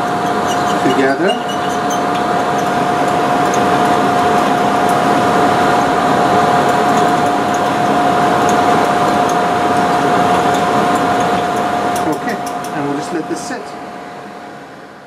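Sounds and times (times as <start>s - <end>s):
machine hum with whine: 0.0s - 15.0s
metal instrument clicking in dish: 6.6s - 12.8s.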